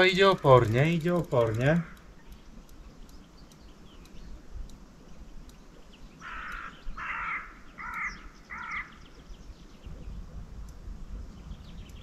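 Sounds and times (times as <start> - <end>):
bird calling roughly: 6.2 - 9.0.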